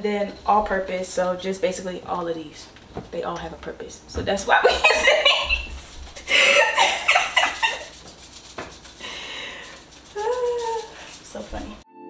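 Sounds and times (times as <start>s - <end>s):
women laughing: 4.6s - 8.0s.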